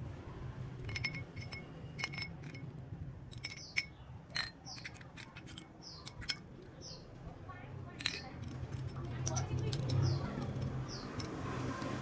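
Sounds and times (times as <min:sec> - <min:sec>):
tweezers clinking against glass: 0:00.8 - 0:02.7, 0:03.3 - 0:06.5, 0:08.0 - 0:11.9.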